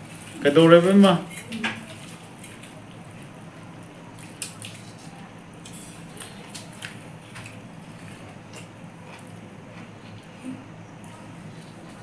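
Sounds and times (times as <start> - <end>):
fingers mixing rice on plates: 0.0 - 12.0
steady low hum: 0.0 - 12.0
mouths chewing: 6.1 - 12.0.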